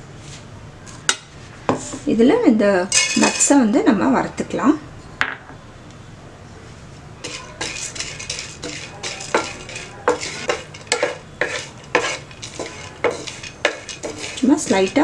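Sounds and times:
faint sizzle: 6.7 - 15.0
wooden spatula scraping a pan: 7.2 - 15.0.

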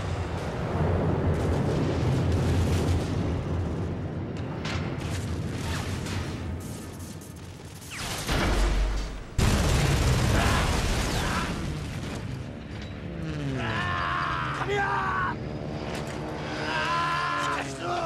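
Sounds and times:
continuous rumbling din: 0.0 - 18.0
loud blast: 8.1 - 12.0.

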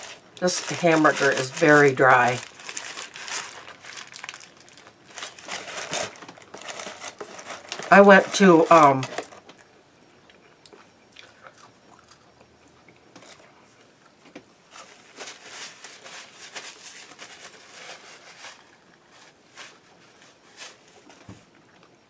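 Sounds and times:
person chewing food: 9.6 - 13.0.

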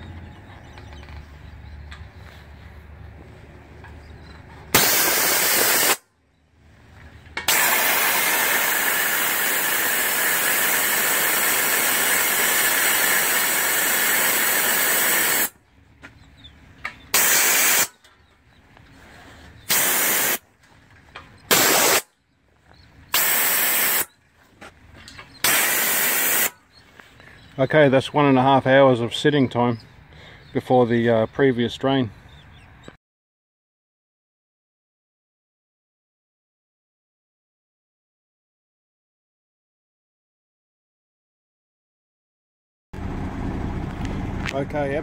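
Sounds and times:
compressed air hissing from valves: 4.7 - 6.0, 7.5 - 15.5, 17.1 - 17.9, 19.6 - 20.4, 21.5 - 22.1, 23.1 - 24.1, 25.4 - 26.6.

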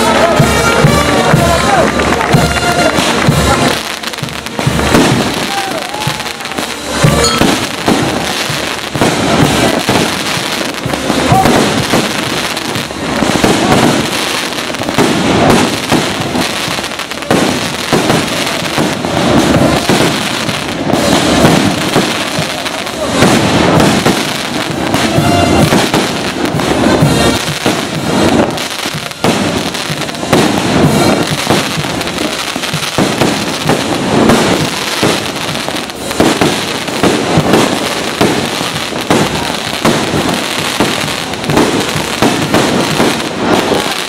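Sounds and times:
music playing: 0.0 - 15.4, 22.2 - 36.2
firecrackers popping: 0.0 - 44.0.

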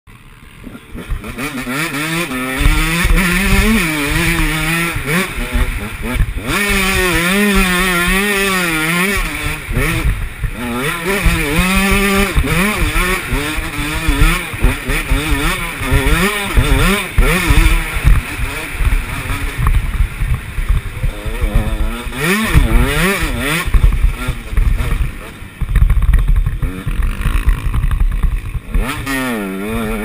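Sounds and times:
motocross bike engine revving: 0.1 - 30.0
wind rumbling on microphone: 9.3 - 29.1.

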